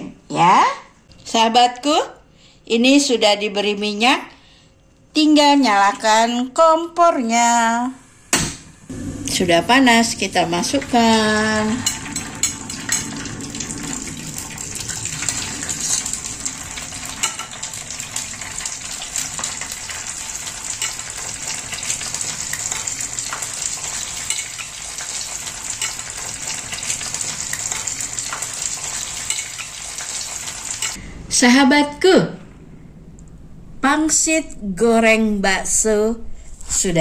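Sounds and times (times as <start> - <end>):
food sizzling in hot oil: 7.8 - 31.0.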